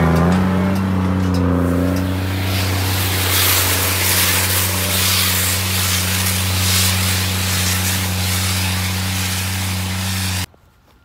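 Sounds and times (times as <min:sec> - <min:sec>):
tractor engine drone: 0:00.0 - 0:10.5
baler machinery hiss: 0:01.7 - 0:10.5.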